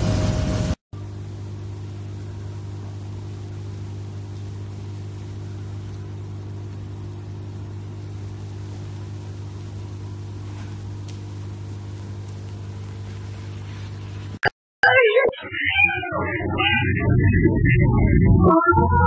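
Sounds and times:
low hum: 0.0 - 0.8.

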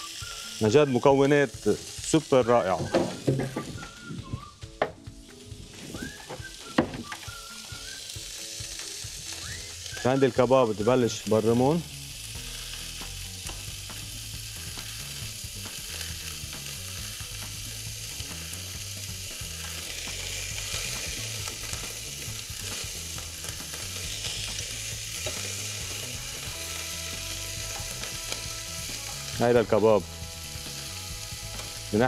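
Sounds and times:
meat sizzling in a pan: 0.0 - 32.0.

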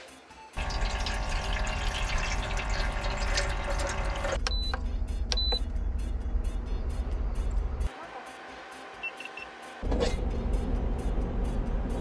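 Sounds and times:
water pouring into metal tin: 0.6 - 4.4
water pump humming: 0.6 - 4.7.

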